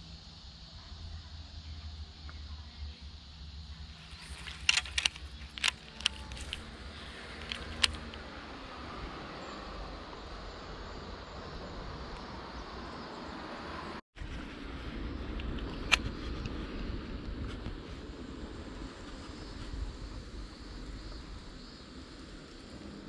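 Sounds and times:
traffic rumble on bridge: 0:00.0 - 0:23.0
sharp clicks and knocks: 0:04.1 - 0:06.7, 0:07.4 - 0:08.2
vehicle passing with rushing sound: 0:05.6 - 0:23.0.

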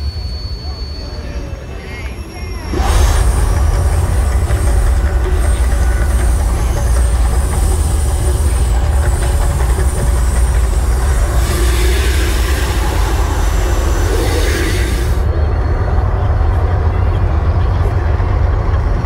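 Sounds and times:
deep continuous rumble: 0:00.0 - 0:19.0
gas flame jets hissing: 0:02.4 - 0:15.4.

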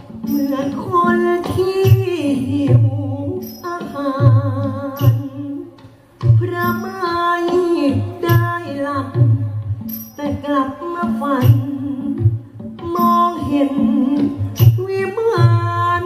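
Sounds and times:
person singing with vibrato: 0:06.5 - 0:16.0.

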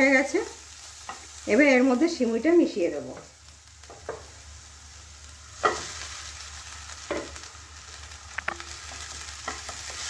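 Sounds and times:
vegetables sizzling in a pan: 0:00.0 - 0:10.0
spatula stirring: 0:08.4 - 0:10.0.

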